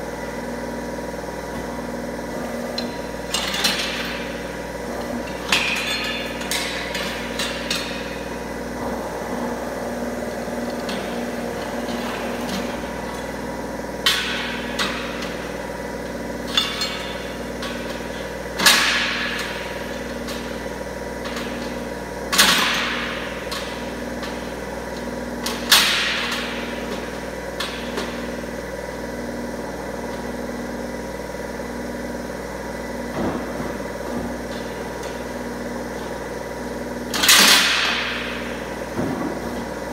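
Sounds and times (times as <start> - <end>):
bending machine humming: 0.0 - 39.9
sharp metal clanks: 5.3 - 8.3.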